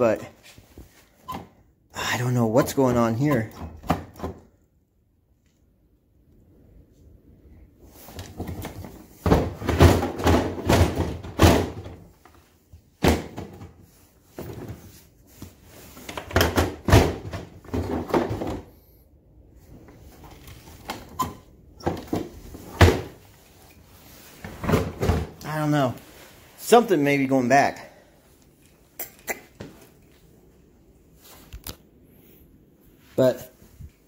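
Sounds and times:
plastic tool boxes knocking together: 8.4s - 12.1s, 13.0s - 13.8s, 16.1s - 18.7s, 24.5s - 25.4s.

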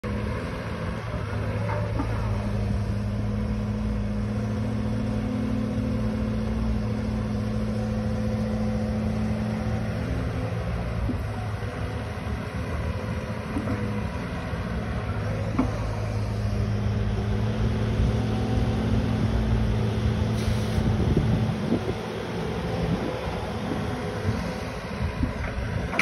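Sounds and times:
diesel dump truck: 0.0s - 26.0s
excavator diesel engine working: 0.0s - 26.0s
excavator hydraulics: 20.2s - 21.8s.

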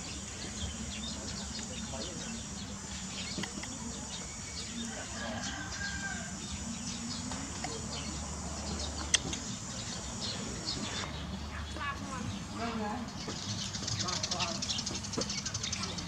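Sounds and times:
bird chirps and calls: 0.0s - 16.0s
outdoor background noise: 0.0s - 16.0s.

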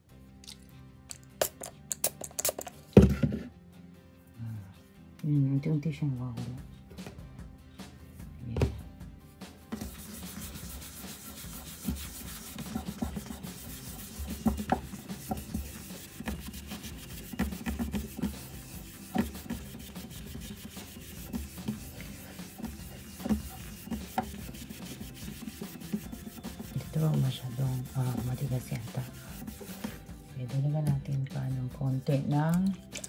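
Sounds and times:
cloth rubbing on wooden tabletop: 9.8s - 30.2s.

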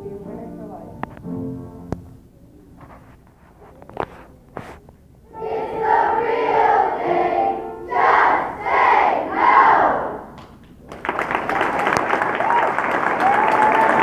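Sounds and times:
children singing in chorus: 5.3s - 10.3s.

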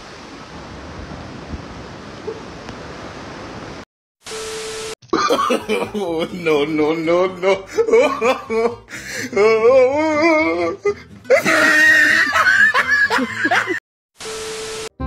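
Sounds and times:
person laughing hard: 5.1s - 13.8s
tv static hiss: 14.2s - 15.0s.

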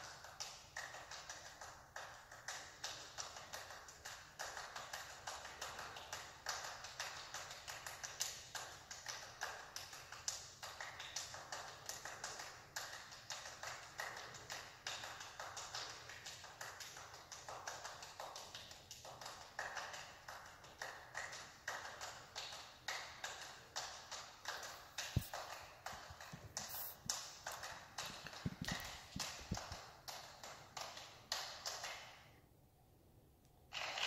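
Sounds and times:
fast hand clapping: 0.0s - 32.3s.

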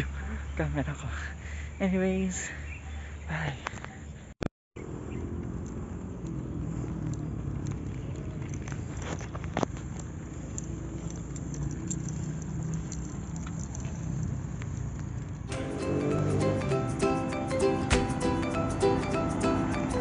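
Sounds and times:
bicycle rolling on asphalt: 4.8s - 16.9s
scattered clicks: 5.3s - 15.6s.

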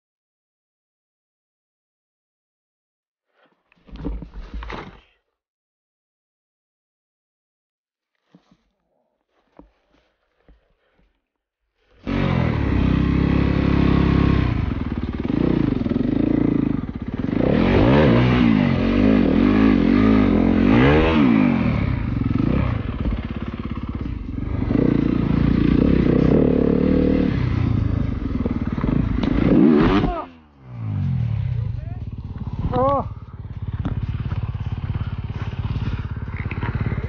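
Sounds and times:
dirt bike engine revving: 12.0s - 37.0s.

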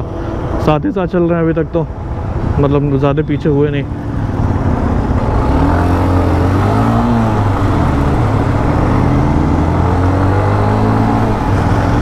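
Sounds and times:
wind and road noise: 0.0s - 12.0s
motorcycle engine running: 3.7s - 12.0s.

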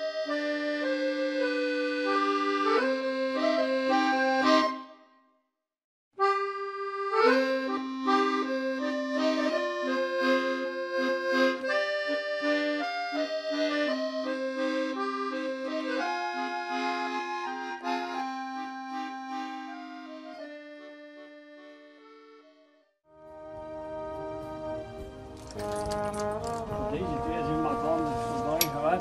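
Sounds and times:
accordion music: 0.0s - 5.2s, 6.2s - 29.0s.

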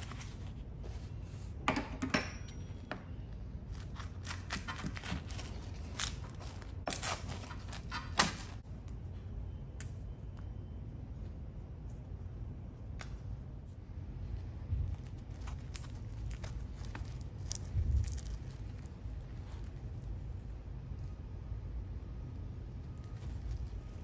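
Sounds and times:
pizza cutter crunching crust: 3.6s - 8.6s.

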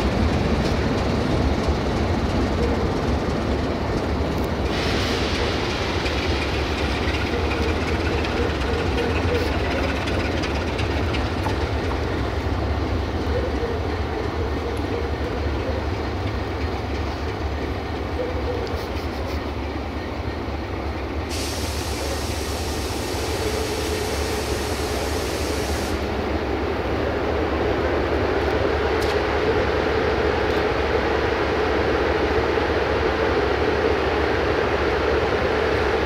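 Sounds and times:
diesel locomotive idling: 0.0s - 36.0s
high hiss: 21.3s - 26.1s.

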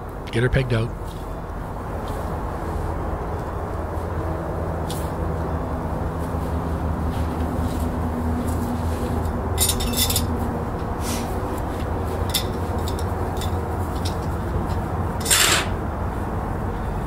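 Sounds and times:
steady low hum: 0.0s - 17.0s
metal tent pegs clinking: 9.6s - 10.5s, 12.1s - 15.8s.

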